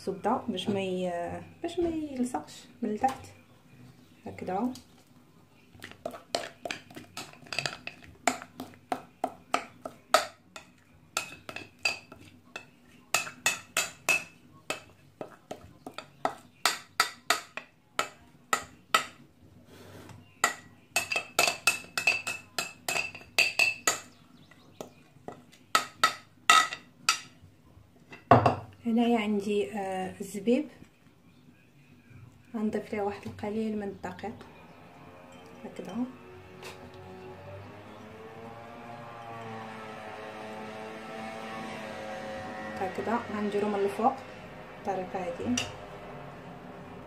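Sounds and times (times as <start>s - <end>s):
spoon clinking in glass bowl: 20.4s - 24.1s.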